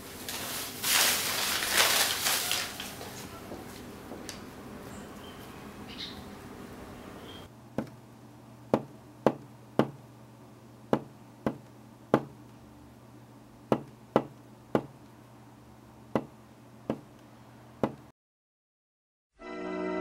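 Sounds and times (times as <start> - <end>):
fingertip tapping on wooden floor: 10.9 - 12.4, 13.7 - 15.0, 16.9 - 17.1, 17.8 - 18.1.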